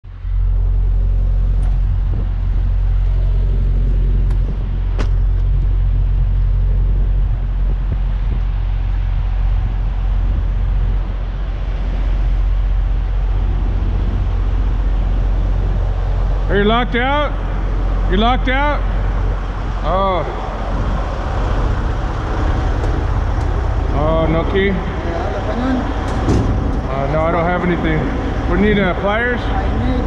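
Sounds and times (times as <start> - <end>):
diesel engine idling: 0.0 - 30.0.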